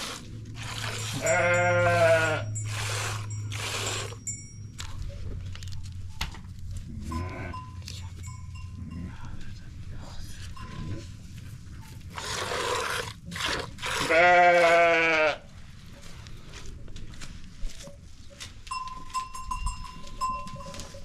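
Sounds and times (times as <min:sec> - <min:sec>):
goat bleating: 0:01.1 - 0:02.6, 0:07.0 - 0:07.7, 0:14.0 - 0:15.5.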